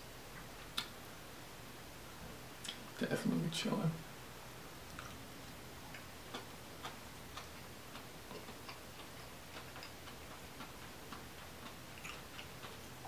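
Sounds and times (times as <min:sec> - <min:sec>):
chewing and lip smacks: 0:04.9 - 0:05.2, 0:05.9 - 0:13.0.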